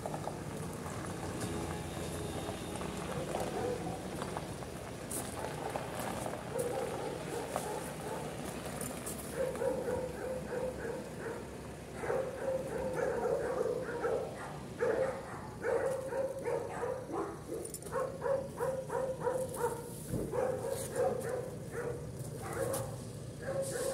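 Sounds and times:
dog barking: 3.2 - 4.1, 5.3 - 5.8, 6.5 - 8.4, 9.3 - 23.9.

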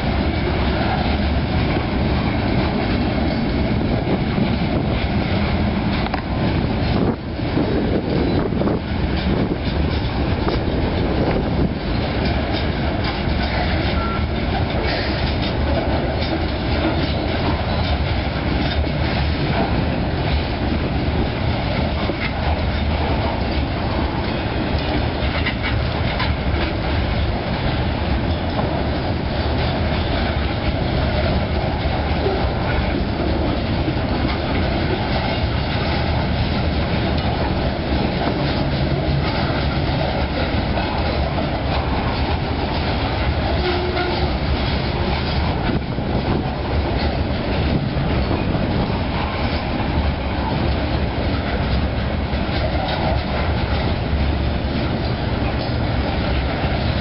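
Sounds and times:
freight train rumble: 0.0 - 57.0
wheels clattering over rails: 0.0 - 57.0.

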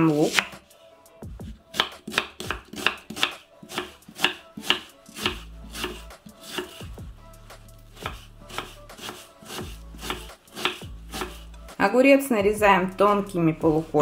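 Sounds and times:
knife chopping on wooden board: 0.2 - 0.6, 1.7 - 7.0, 8.0 - 11.4.

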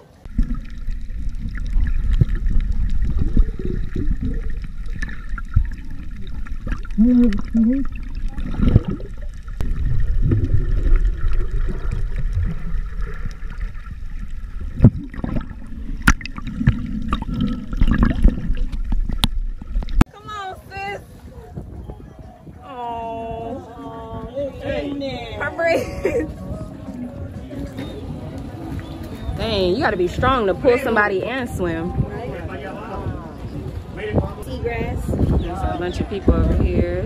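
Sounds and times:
underwater churning and bubbles: 0.0 - 20.1.

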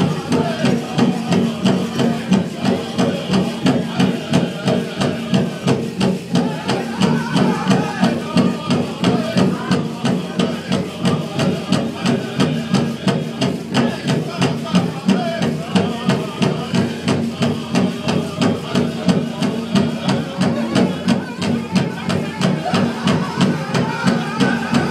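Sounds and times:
big drum steady beat: 0.0 - 24.9
drum group singing: 0.0 - 24.9.

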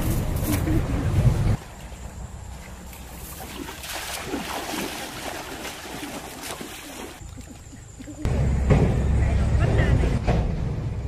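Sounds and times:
water splashing around wading legs: 2.8 - 8.2.

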